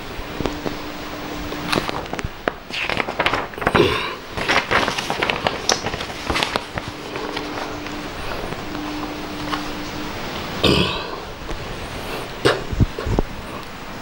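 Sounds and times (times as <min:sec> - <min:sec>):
low steady hum: 0:00.0 - 0:14.0
paper rustling: 0:00.3 - 0:10.6.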